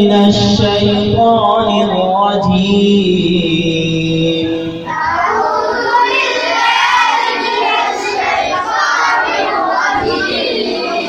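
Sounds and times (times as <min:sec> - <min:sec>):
group chanting in unison: 0:04.7 - 0:11.0.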